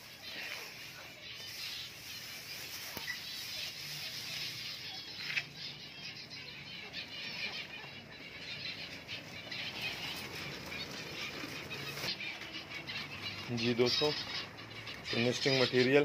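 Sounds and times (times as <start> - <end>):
dry grass rustling: 0.0 - 6.8, 8.2 - 15.3
finches chirping: 0.0 - 16.0.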